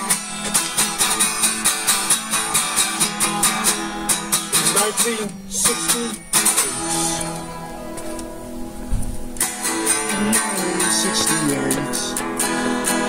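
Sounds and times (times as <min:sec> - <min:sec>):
strummed guitar music: 0:00.0 - 0:13.0
short voice: 0:05.2 - 0:07.5.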